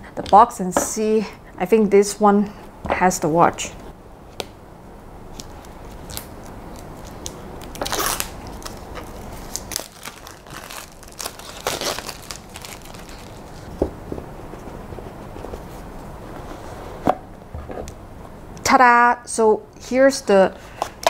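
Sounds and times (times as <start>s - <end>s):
plastic packaging crinkling: 5.4s - 13.8s.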